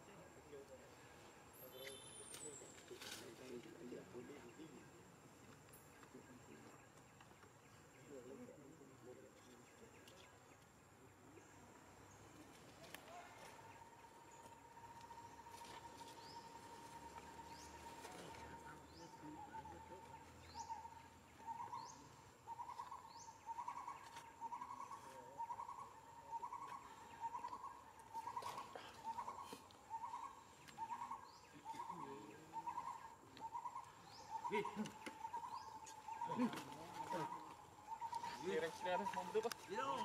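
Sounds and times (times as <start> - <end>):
bird calling: 12.1 - 40.0.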